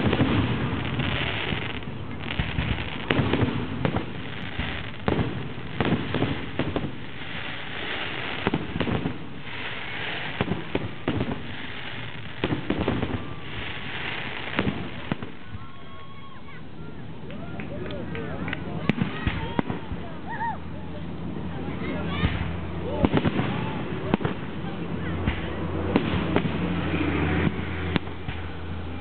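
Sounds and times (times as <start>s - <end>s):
fireworks bursting with sharp bangs: 0.0s - 16.0s, 18.5s - 20.2s, 22.1s - 29.0s
hissing crackle of fireworks: 0.0s - 29.0s.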